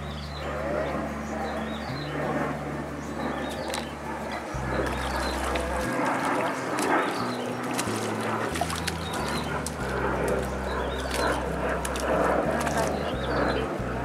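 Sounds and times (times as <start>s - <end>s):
fish splashing in water: 3.6s - 13.1s.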